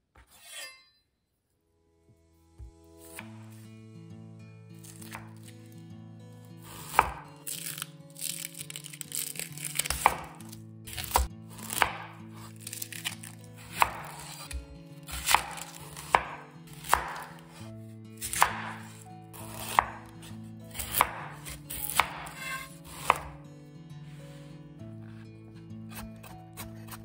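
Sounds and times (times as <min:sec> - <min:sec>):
knife chopping on cutting board: 0:03.0 - 0:03.4, 0:04.9 - 0:05.5, 0:06.7 - 0:17.6, 0:18.2 - 0:23.4, 0:25.0 - 0:25.2, 0:25.9 - 0:27.0.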